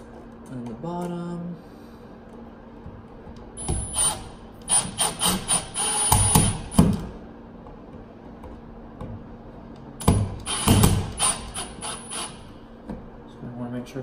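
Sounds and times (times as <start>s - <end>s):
impact driver whirring pulses: 3.6s - 7.0s, 10.0s - 12.5s.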